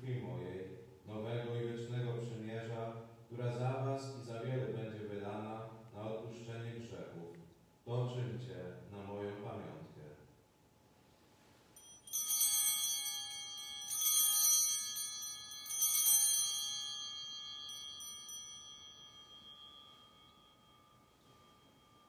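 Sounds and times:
altar bells ringing: 11.8s - 22.0s.

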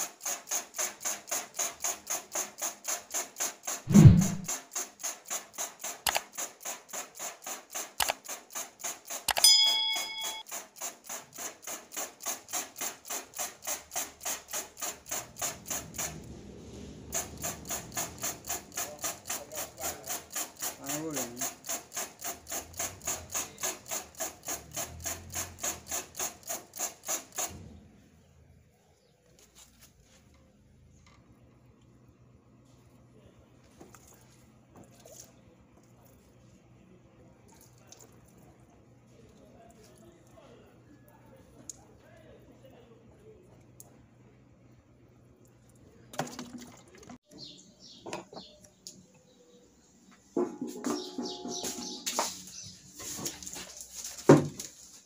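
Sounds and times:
spray bottle squirting water: 0.0s - 9.4s, 10.5s - 16.2s, 17.1s - 27.6s
thump: 3.9s - 4.5s.

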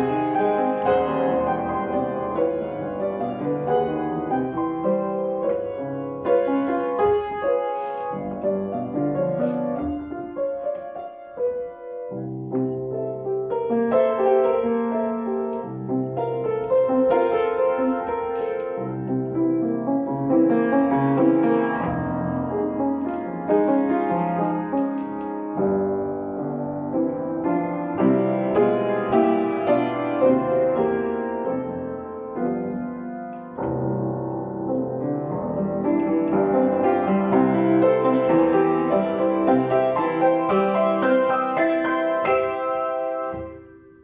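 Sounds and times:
piano playing: 0.0s - 44.0s.

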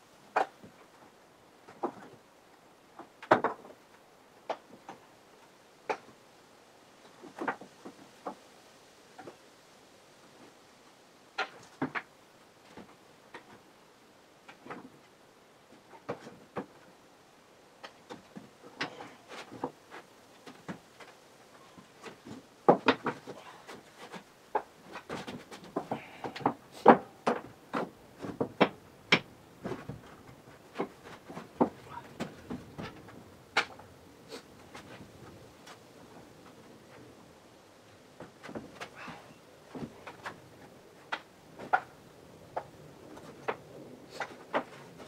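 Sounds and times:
wooden knocks and clatter: 1.6s - 2.2s, 2.9s - 5.1s, 7.1s - 8.4s, 11.4s - 13.7s, 14.4s - 15.1s, 15.7s - 16.9s, 17.8s - 33.9s, 38.1s - 45.0s.

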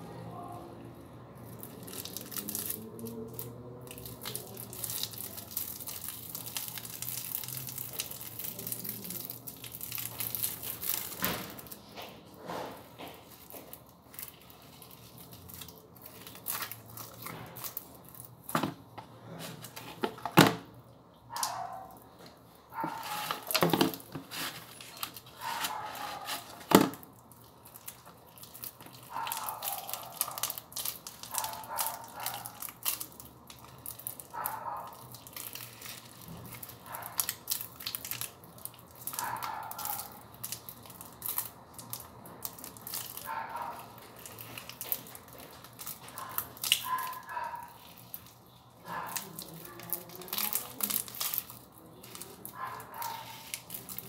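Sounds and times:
slime crackling and tearing: 1.4s - 18.6s, 22.8s - 54.0s.

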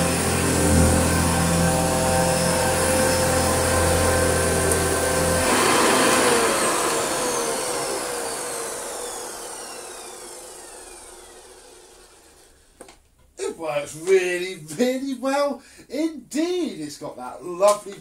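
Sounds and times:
vacuum cleaner motor winding down: 0.0s - 12.6s.

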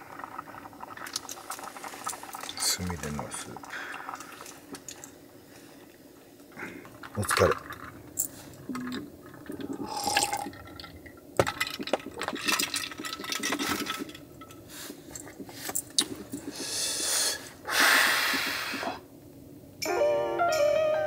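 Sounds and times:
water pouring and splashing: 0.0s - 5.2s, 9.2s - 15.6s.

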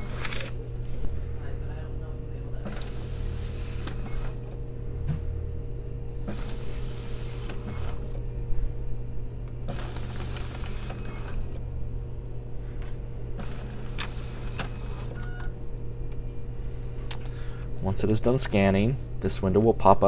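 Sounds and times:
document scanner feeding pages: 0.0s - 1.6s, 2.5s - 5.4s, 6.2s - 8.3s, 9.6s - 11.6s, 12.6s - 15.6s.

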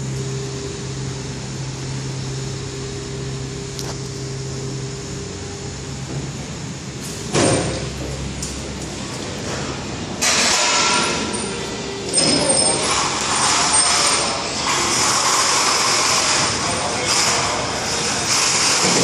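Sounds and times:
elevator low hum: 0.0s - 10.3s, 10.9s - 15.2s
elevator whine: 0.0s - 19.0s.

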